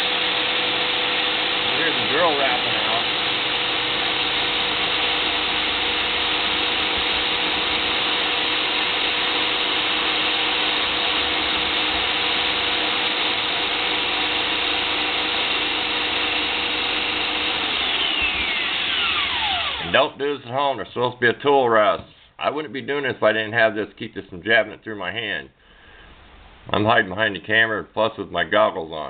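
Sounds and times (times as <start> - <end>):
electric drill motor whine: 0.0 - 20.0
steel tool scraping spinning wood: 0.0 - 20.0.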